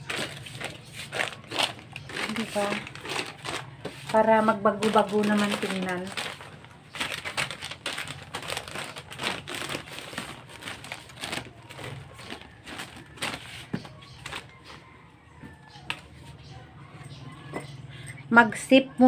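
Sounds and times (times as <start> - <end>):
plastic packets crinkling: 0.0 - 14.9.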